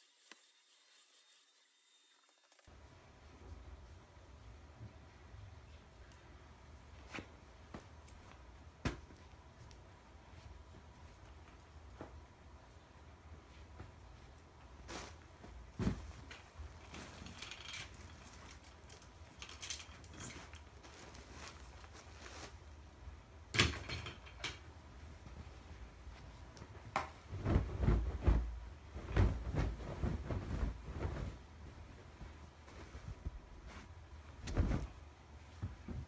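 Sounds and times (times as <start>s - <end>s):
bedding fabric rustling: 2.8s - 19.4s, 20.0s - 23.3s, 24.6s - 36.0s
soft thumps of pillows: 13.5s - 16.3s, 27.1s - 36.0s.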